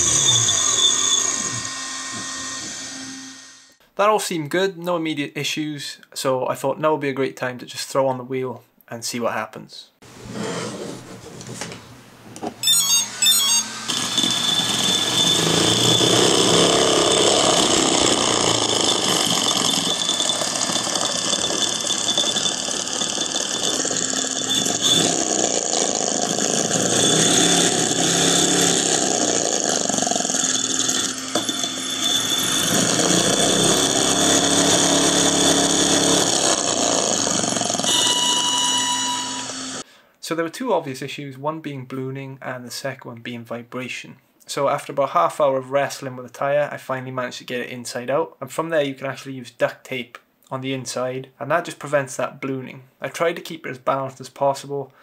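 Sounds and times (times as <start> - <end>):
electric motor high-pitched whine: 0.0 - 3.8, 12.6 - 39.8
electronic beeps: 12.6 - 16.2.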